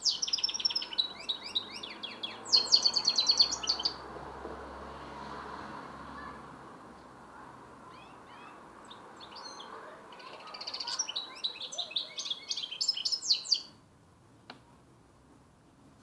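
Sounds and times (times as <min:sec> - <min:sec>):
young finch singing: 0:00.0 - 0:04.0, 0:08.0 - 0:13.8.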